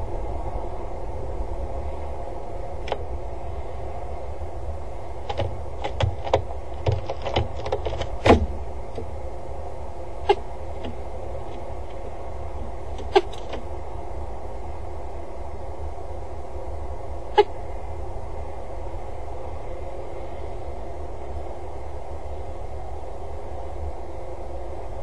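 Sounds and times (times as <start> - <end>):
low hum: 0.0 - 25.0
bird feet tapping on grating: 5.2 - 9.2, 10.2 - 13.7.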